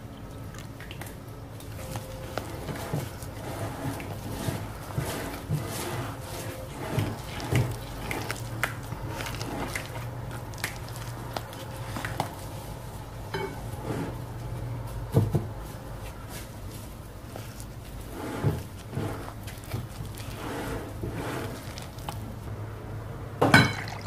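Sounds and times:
spatula scraping wet batter: 1.7 - 12.6, 17.4 - 22.5.

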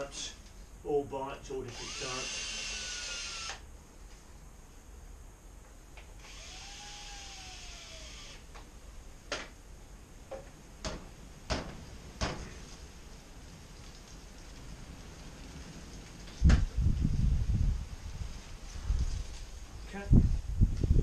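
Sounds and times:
cordless drill whirring: 1.7 - 3.6, 6.2 - 8.4.

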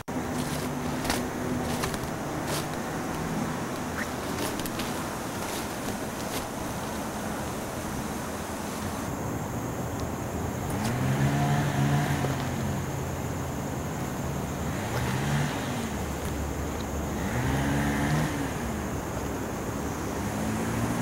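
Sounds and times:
engine revving: 0.0 - 7.0, 10.7 - 13.0, 14.5 - 19.0, 20.1 - 21.0
outdoor background noise: 0.0 - 21.0.

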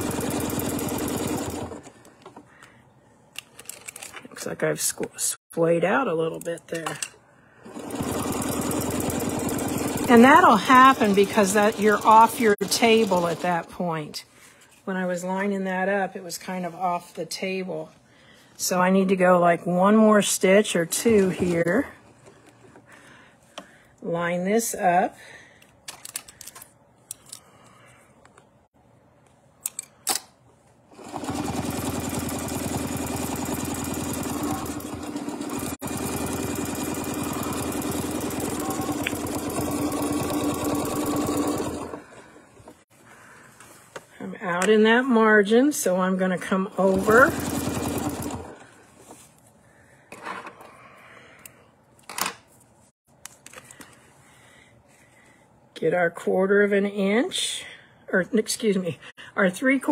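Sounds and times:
sewing machine stitching: 0.0 - 1.9, 7.7 - 13.7, 30.9 - 42.8, 46.8 - 48.6.

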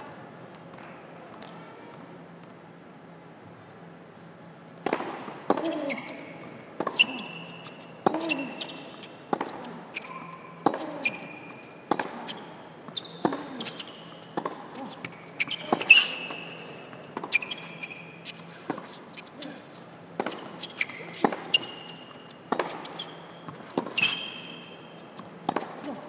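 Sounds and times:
racket striking ball: 4.8 - 12.4, 13.2 - 14.8, 20.1 - 26.0
tennis ball bouncing: 4.8 - 18.9, 20.1 - 26.0
shoes squeaking on court: 4.8 - 26.0.

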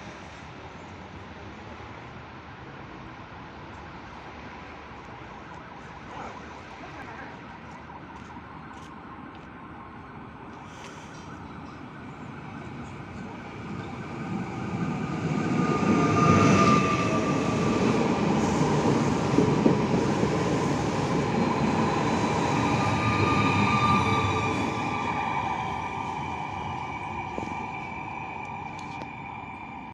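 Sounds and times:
train wheels rumbling on rails: 10.7 - 29.9.

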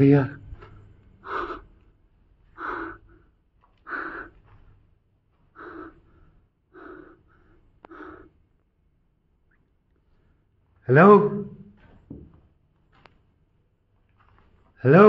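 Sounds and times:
man breathing heavily: 0.4 - 8.6.

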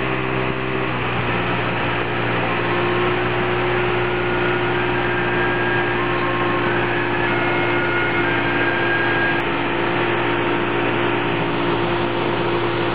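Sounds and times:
boat engine humming: 0.0 - 12.9
rushing noise: 1.2 - 9.4.

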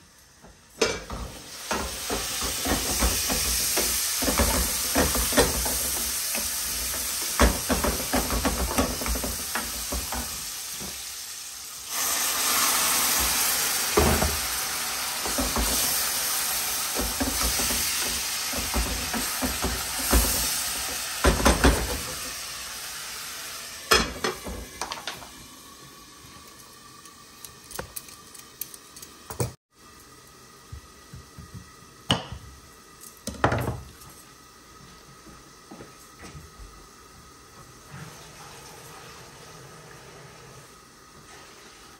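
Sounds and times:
onions sizzling in oil: 0.0 - 27.7.

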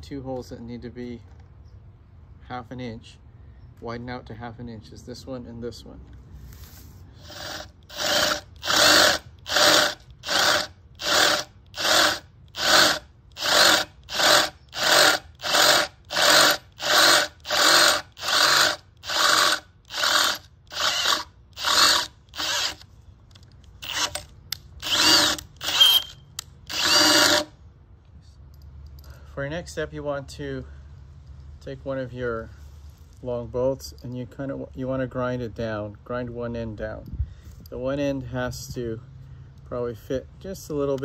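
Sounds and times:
cordless drill drilling metal: 7.2 - 22.9, 23.8 - 27.5.

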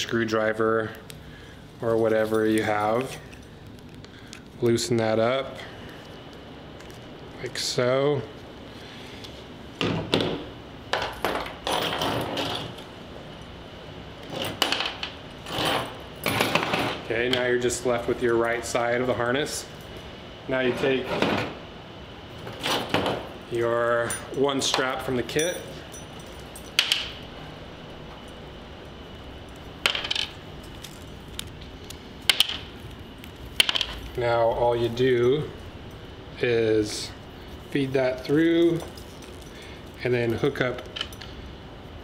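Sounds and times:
leather straps rustling: 37.2 - 40.6.

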